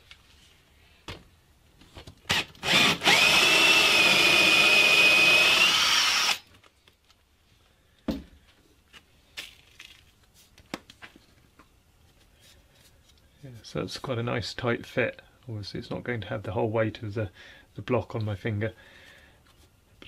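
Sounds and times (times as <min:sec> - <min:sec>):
electric drill boring wood: 0:02.3 - 0:06.4.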